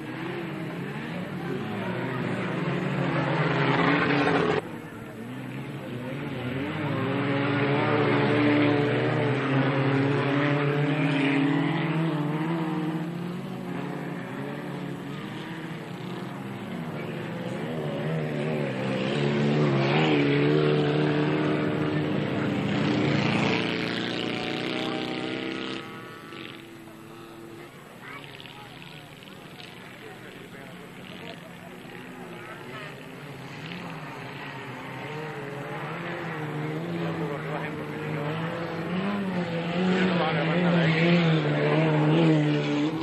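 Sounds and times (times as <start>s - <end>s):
racing car engines revving: 0.0s - 43.0s.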